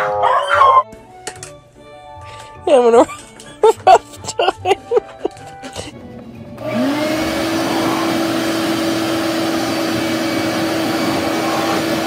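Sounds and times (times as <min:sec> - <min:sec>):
shop vacuum running: 0:05.9 - 0:12.0.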